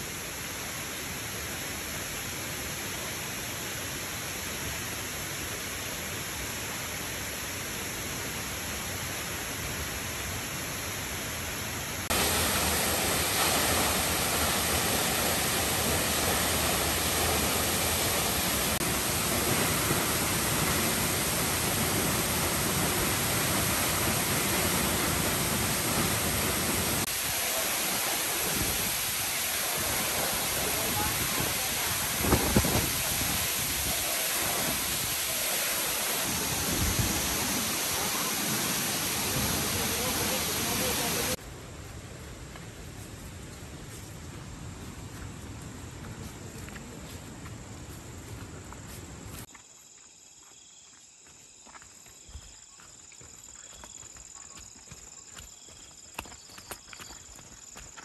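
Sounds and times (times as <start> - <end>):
waterfall rushing: 11.9 - 41.4.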